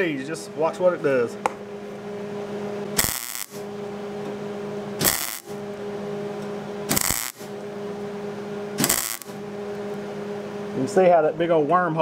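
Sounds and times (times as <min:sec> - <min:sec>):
steady welder hum: 0:00.0 - 0:12.0
welding arc crackling zaps: 0:03.0 - 0:03.7, 0:05.0 - 0:05.6, 0:06.9 - 0:07.5, 0:08.8 - 0:09.4.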